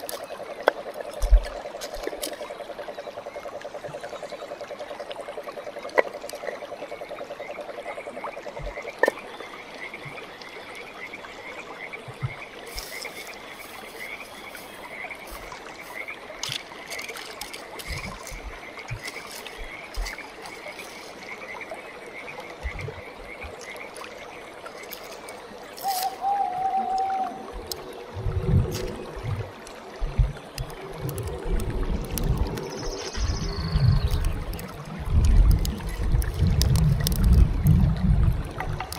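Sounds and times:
frogs trilling: 0.0 - 36.4
dry grass rustling: 12.7 - 21.5, 24.8 - 26.2
frog chirps: 25.8 - 27.4.

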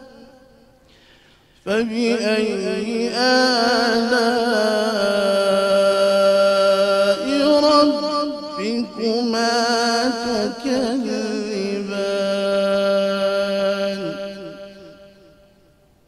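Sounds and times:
man chanting melodically: 0.0 - 0.6, 1.6 - 15.4.

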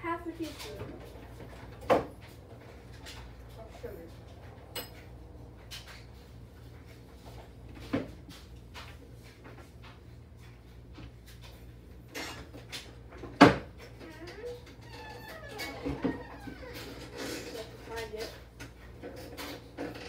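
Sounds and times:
things clattering in a cabinet: 0.4 - 20.0.

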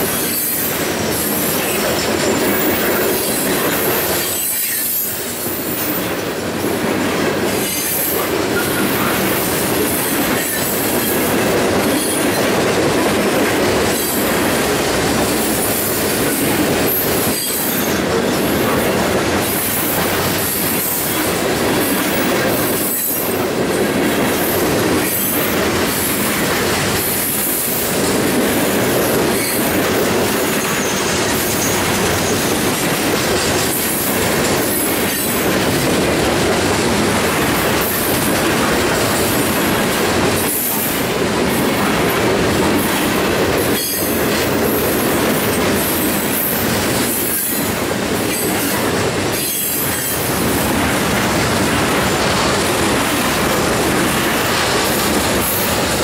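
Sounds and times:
steel wheels rumbling on rail: 0.0 - 56.0
wheels clacking over rail joints: 0.0 - 56.0.

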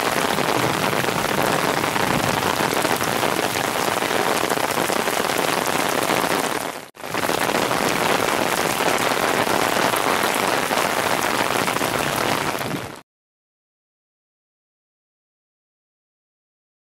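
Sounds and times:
heavy rain splashing into water: 0.0 - 13.0.

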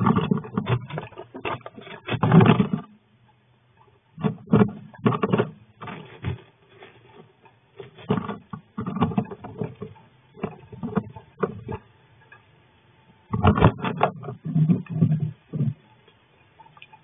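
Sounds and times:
claws scratching on wood: 0.0 - 2.8.

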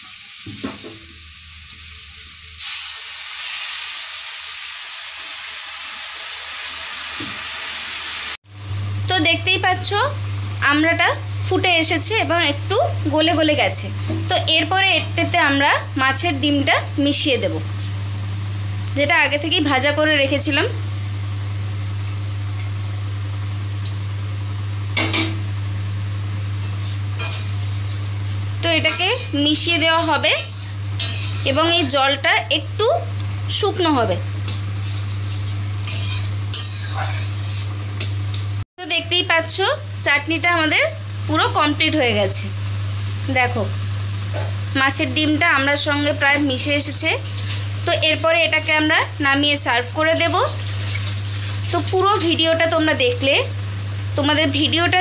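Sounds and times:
oil sizzling and hissing: 0.0 - 8.6, 26.4 - 32.1, 34.3 - 38.6, 40.9 - 52.5
steady low hum: 8.5 - 50.7
metal utensils clinking on pan: 27.2 - 28.0, 28.8 - 31.9, 34.5 - 38.2.

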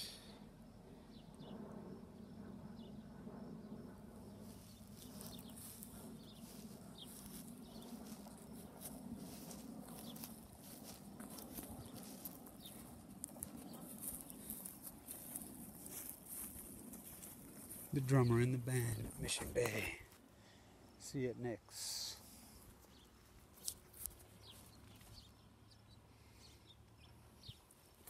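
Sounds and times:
low steady hum: 0.0 - 21.6
faint birds chirping: 0.0 - 28.0.

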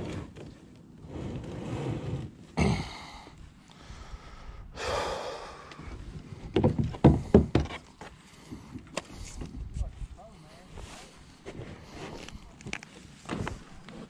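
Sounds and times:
person breathing hard: 2.6 - 6.1
knocks on hollow kayak hull: 6.5 - 7.8.

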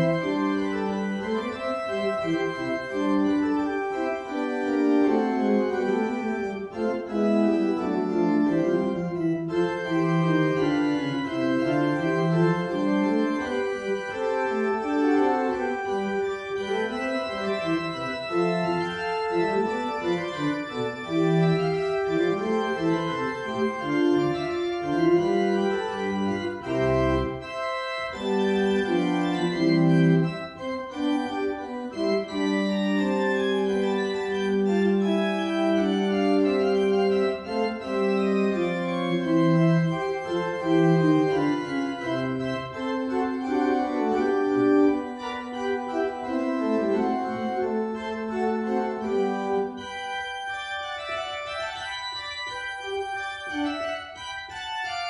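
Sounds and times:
organ playing a fugue: 0.0 - 55.0.

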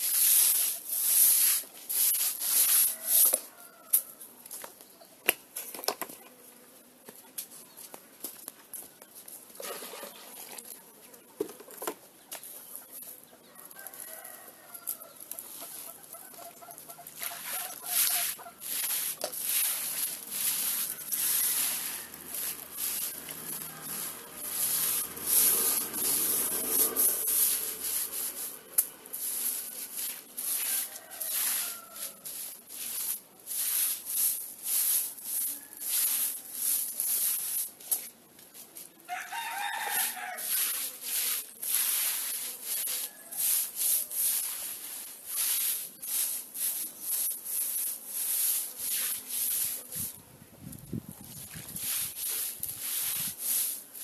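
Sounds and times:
broom scraping wet mud floor: 0.0 - 3.8, 9.2 - 11.0, 12.4 - 50.2, 50.8 - 54.0
chickens clucking: 15.0 - 18.6.

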